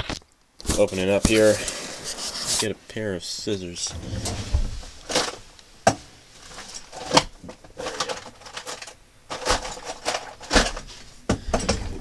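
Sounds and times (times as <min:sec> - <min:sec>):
rustling: 0:03.9 - 0:05.4.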